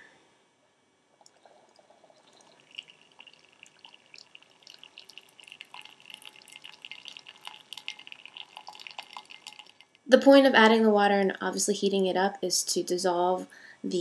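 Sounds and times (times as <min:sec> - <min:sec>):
water pouring into a bowl: 0:01.2 - 0:10.1.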